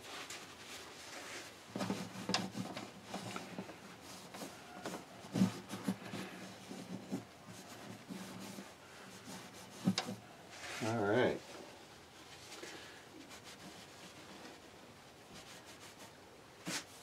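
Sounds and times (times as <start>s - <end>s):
cloth rubbing on guitar: 0.0s - 12.6s, 13.2s - 14.6s, 15.3s - 17.0s.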